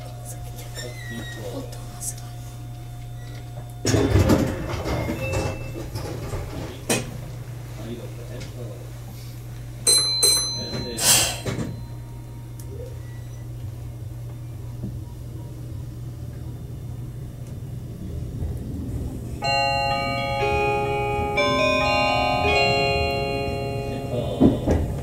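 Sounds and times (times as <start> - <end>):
automated announcement: 0.0 - 7.0, 19.4 - 25.0
train running hum: 0.0 - 25.0
short ding: 9.9 - 12.1
electronic chime melody: 19.4 - 25.0.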